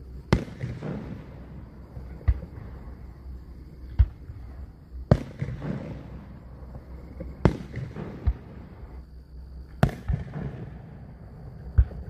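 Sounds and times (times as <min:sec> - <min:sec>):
small firework pops: 0:00.3 - 0:02.9, 0:03.8 - 0:04.4, 0:05.1 - 0:08.8, 0:09.7 - 0:10.9, 0:11.7 - 0:12.0.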